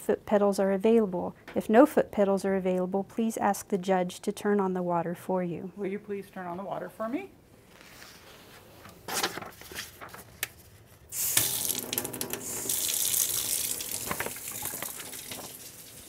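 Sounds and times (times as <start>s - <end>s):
water splashing into metal sink: 11.2s - 16.0s.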